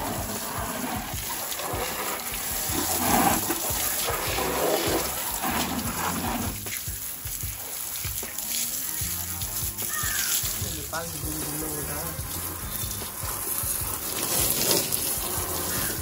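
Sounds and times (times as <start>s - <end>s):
hose water spraying and splashing: 0.0s - 16.0s.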